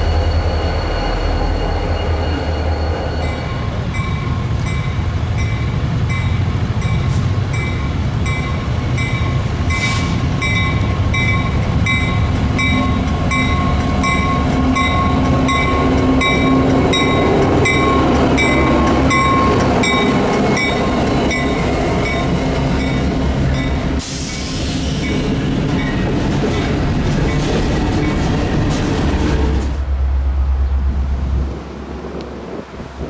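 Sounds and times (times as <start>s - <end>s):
crossing bell ringing: 0.0s - 24.0s
hissing wheel and rail noise: 0.0s - 30.2s
diesel locomotive hum: 0.0s - 33.0s
railcars rumbling: 0.0s - 33.0s
wind on microphone: 30.8s - 33.0s.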